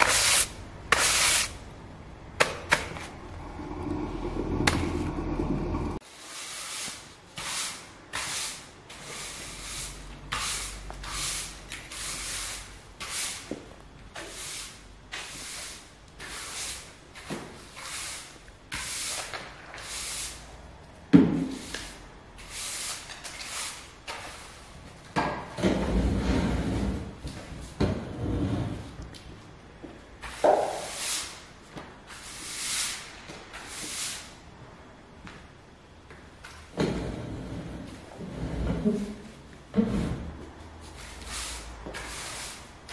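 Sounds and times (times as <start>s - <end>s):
broom sweeping wooden floor: 0.0s - 1.6s, 6.0s - 20.7s, 21.3s - 25.0s, 25.6s - 29.0s, 30.2s - 34.5s, 36.4s - 42.9s
armchair scraping on floor: 25.6s - 29.0s, 36.8s - 41.3s.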